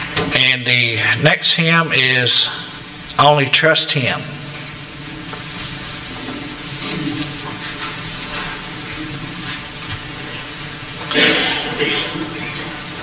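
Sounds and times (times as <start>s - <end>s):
congregation rustling and shuffling: 3.9s - 13.0s
hymnal pages turning: 5.3s - 8.6s.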